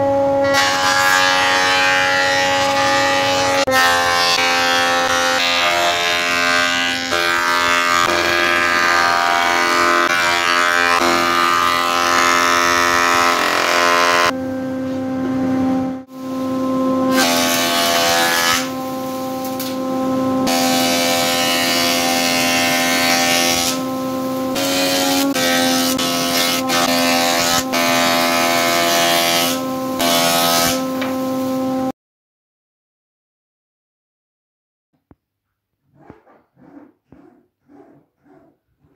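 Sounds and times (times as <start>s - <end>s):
cutterhead planing wood: 0.6s - 14.3s, 17.1s - 18.8s, 19.6s - 31.2s, 35.9s - 38.9s.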